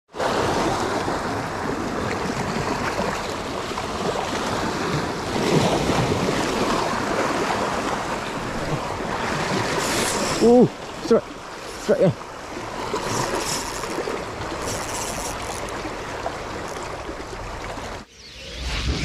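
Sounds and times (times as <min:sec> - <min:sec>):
surf washing onto rocks: 0:04.4 - 0:17.2.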